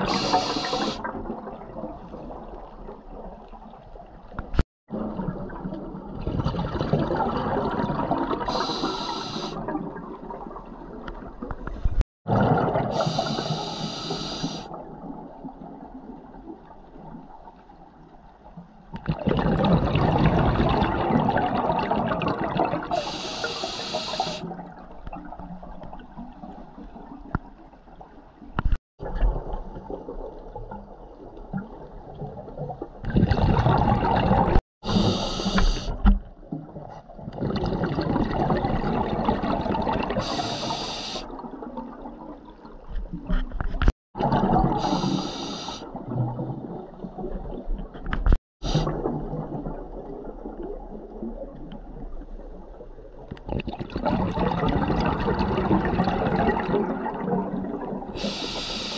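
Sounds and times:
exhaled bubbles gurgling: 0.0s - 4.2s, 4.9s - 17.4s, 18.9s - 27.3s, 29.0s - 43.4s, 44.2s - 47.9s, 48.6s - 58.9s
regulator hissing inhalations: 0.1s - 1.0s, 8.5s - 9.6s, 13.0s - 14.7s, 23.0s - 24.4s, 34.9s - 36.0s, 40.2s - 41.3s, 44.8s - 45.8s, 58.2s - 58.9s.

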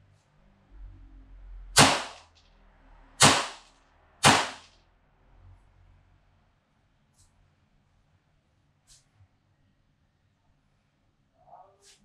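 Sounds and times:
airsoft pistol shots: 1.8s - 2.3s, 3.2s - 4.7s.

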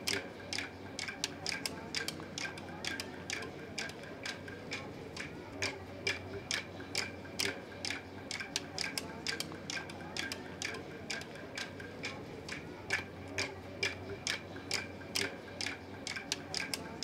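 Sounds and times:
wooden clapsticks clicking: 5.6s - 17.0s.

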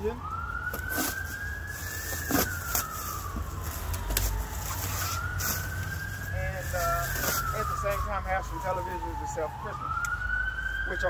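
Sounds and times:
emergency vehicle siren wailing: 0.0s - 11.0s
plastic wrap being cut: 0.7s - 3.2s.

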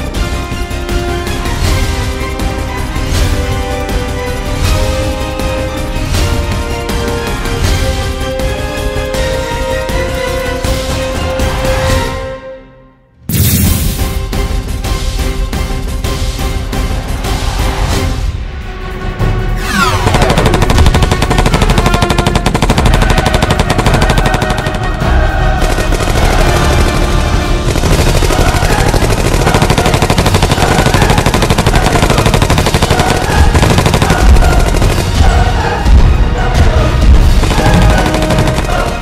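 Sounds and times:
action music: 0.0s - 39.0s.

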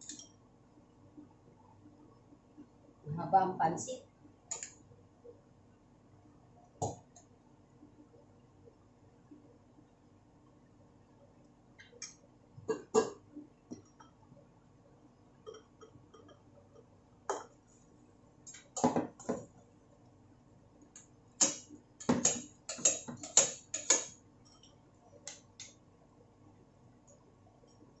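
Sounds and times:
metal spoon clinking on pan and bowl: 21.4s - 24.2s.

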